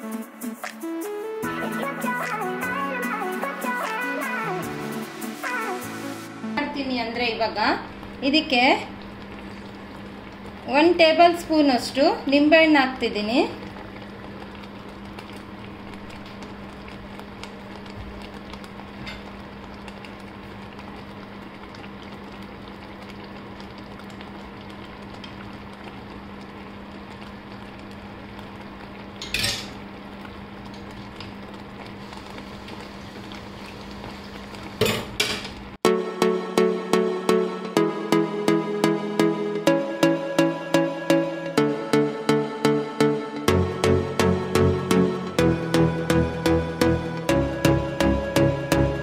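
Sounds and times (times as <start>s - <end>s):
jam bubbling in a pan: 7.4s - 35.8s.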